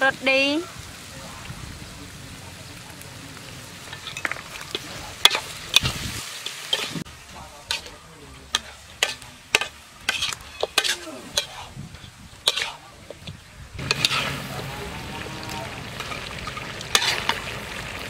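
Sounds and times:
meat sizzling: 0.0 - 18.0
metal spatula scraping wok: 3.8 - 17.8.

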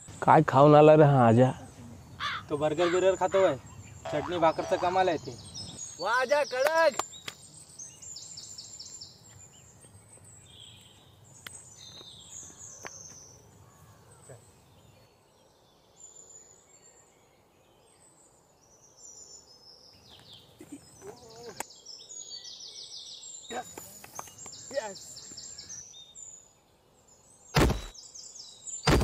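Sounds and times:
birds chirping and trilling: 0.0 - 29.0
sharp knocks: 27.6 - 27.9.

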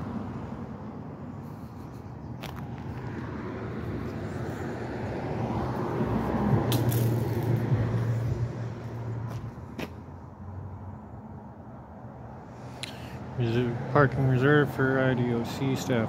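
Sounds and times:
car driving past: 2.5 - 9.6.

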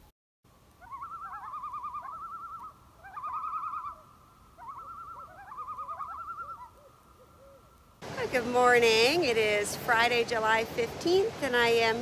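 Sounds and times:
loons tremolo calls: 0.8 - 7.9.

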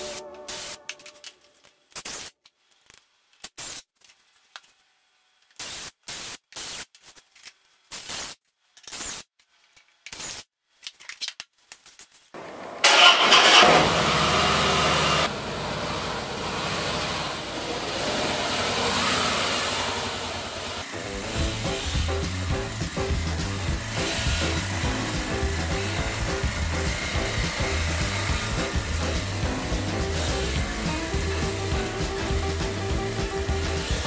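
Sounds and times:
sanding sponge rubbing wood: 21.0 - 34.0.

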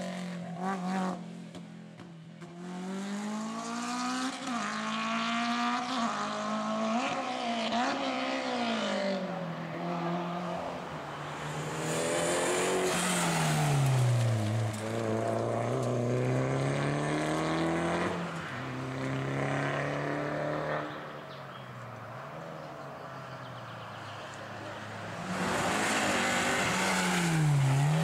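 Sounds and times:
rally car engine revving: 11.4 - 21.0, 24.6 - 28.0.

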